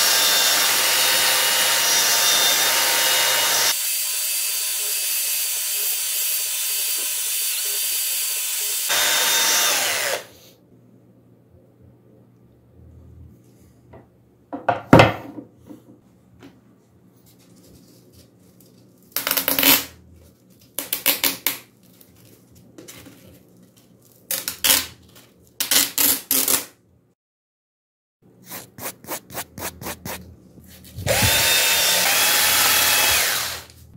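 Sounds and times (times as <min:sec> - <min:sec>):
sandpaper tearing: 0:28.4 - 0:30.2.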